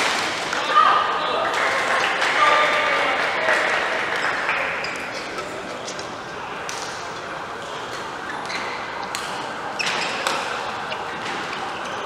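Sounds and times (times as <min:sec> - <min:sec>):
sports hall background noise: 0:00.0 - 0:12.0
racket hitting shuttlecock: 0:10.0 - 0:10.6.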